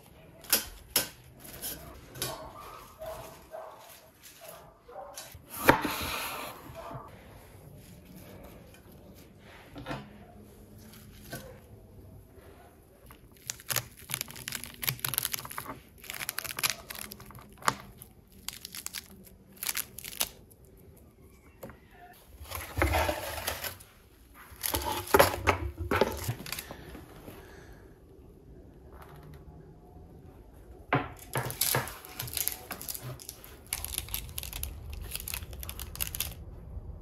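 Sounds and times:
fruit rind tearing: 13.1 - 20.8, 31.2 - 36.4
seeds crackling: 13.1 - 20.9, 31.4 - 36.4.

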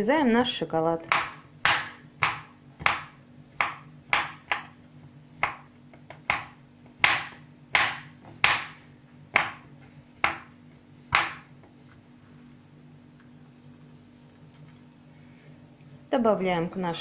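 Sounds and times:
knife chopping on wooden board: 1.0 - 4.8, 5.4 - 11.6.

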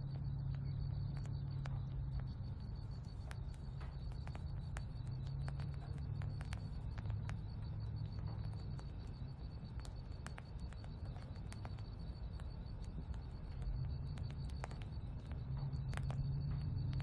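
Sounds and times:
low rumble: 0.0 - 17.0
sharp ticks: 0.0 - 17.0.

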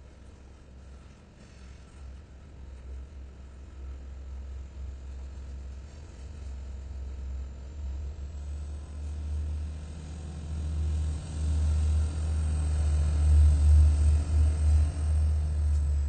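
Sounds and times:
diesel locomotive engine: 0.0 - 16.0
freight train rumbling past: 7.6 - 16.0.

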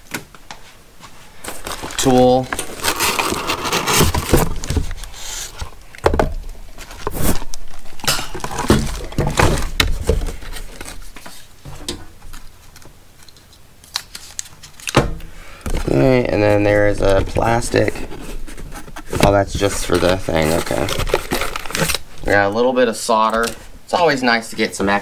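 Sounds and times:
cardboard box rustling and scraping: 1.6 - 5.7, 15.8 - 22.0.

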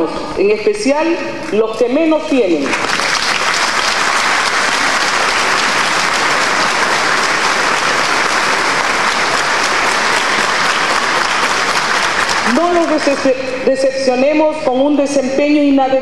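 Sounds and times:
crowd applauding: 2.7 - 13.3.

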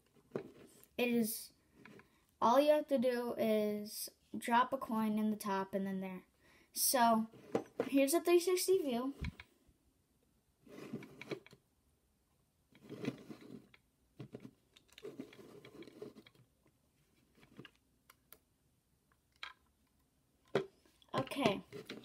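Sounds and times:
plastic bricks scraping and clicking: 12.7 - 16.5, 17.1 - 18.4, 19.1 - 22.0.

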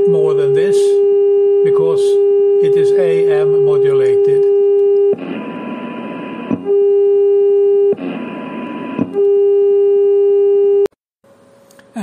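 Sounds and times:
loud distorted low tone: 0.0 - 10.8
receiver hiss: 1.6 - 9.4.

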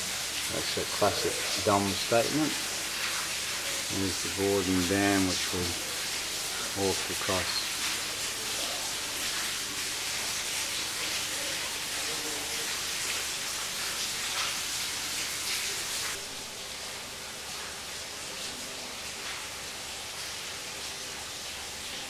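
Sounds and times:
steady broadband hiss: 0.0 - 17.2.

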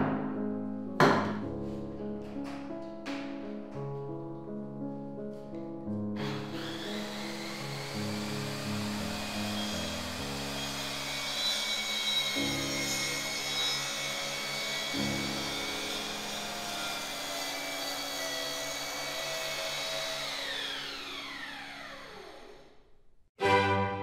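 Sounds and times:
circular saw running: 6.2 - 22.7
saw blade whine coasting down: 6.2 - 22.7.

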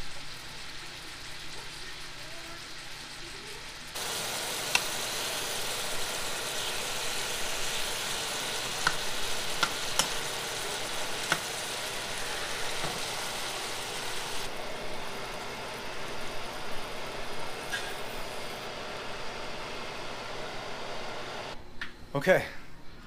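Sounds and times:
fish sizzling in hot oil: 0.0 - 21.0
spatula clicking against pan: 8.8 - 9.0, 9.6 - 10.2.

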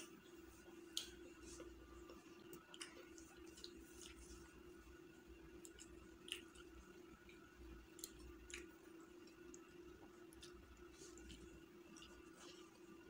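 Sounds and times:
steady low hum: 0.0 - 13.0
chewing and wet mouth clicks: 0.9 - 1.2, 2.4 - 4.4, 5.6 - 9.7, 10.3 - 12.3.

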